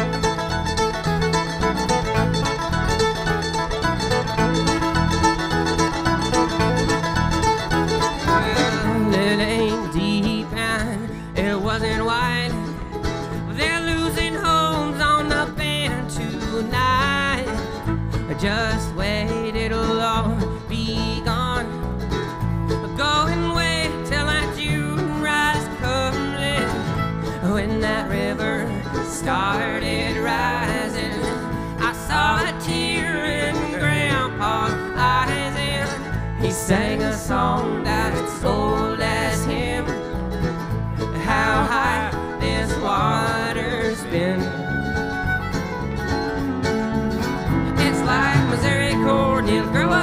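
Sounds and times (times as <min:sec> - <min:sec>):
acoustic guitar strumming: 0:00.0 - 0:50.0
banjo: 0:00.0 - 0:50.0
wavering melody line: 0:45.2 - 0:50.0
steady bass pulse: 0:45.9 - 0:50.0.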